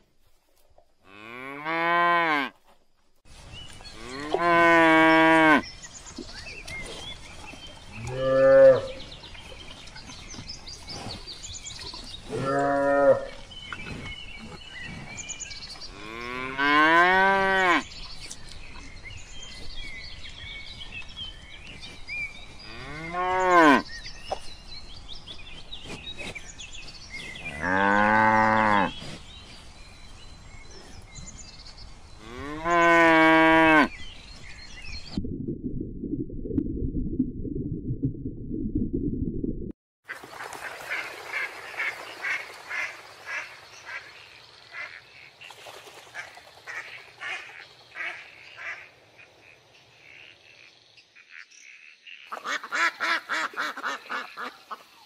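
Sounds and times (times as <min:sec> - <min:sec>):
cows mooing: 0:01.1 - 0:02.5, 0:04.0 - 0:05.6, 0:08.0 - 0:09.0, 0:12.3 - 0:13.4, 0:15.9 - 0:17.8
faint outdoor background: 0:40.9 - 0:55.0.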